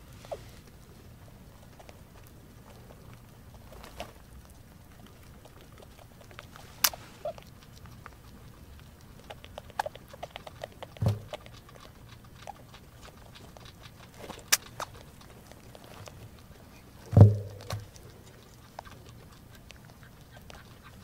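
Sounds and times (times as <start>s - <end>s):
rats crunching and clicking: 0.6s - 21.0s
soft thump: 11.0s - 11.3s, 17.1s - 17.9s.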